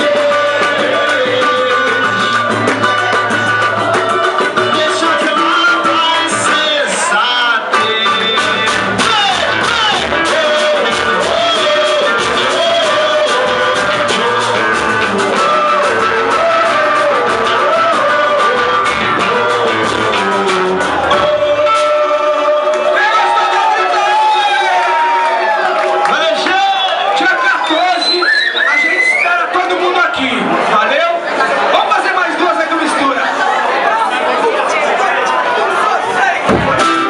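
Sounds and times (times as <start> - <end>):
quick percussion beat: 0.0 - 7.0, 7.7 - 22.1, 36.4 - 37.0
person singing: 0.0 - 23.0
guitar: 0.0 - 31.7, 32.9 - 37.0.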